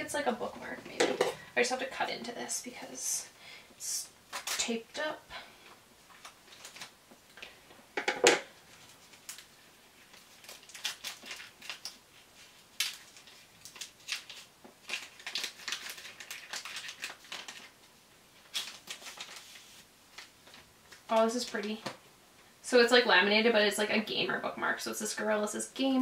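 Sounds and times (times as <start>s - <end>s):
package wrapping crinkling: 4.3s - 4.8s, 6.1s - 7.5s, 8.1s - 21.6s.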